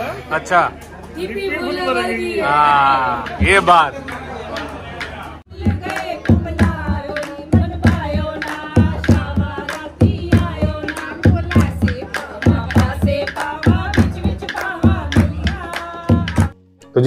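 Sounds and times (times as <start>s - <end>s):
hand-clapping: 3.2s - 16.6s
hand drum beating: 5.5s - 16.6s
women singing: 5.5s - 16.6s.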